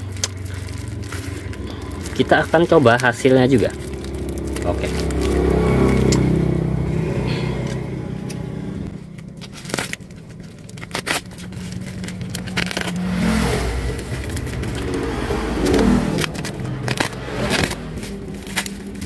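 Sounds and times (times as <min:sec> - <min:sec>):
plastic mailer tearing: 0:00.0 - 0:06.2, 0:09.0 - 0:19.0
low handling rumble: 0:00.0 - 0:19.0.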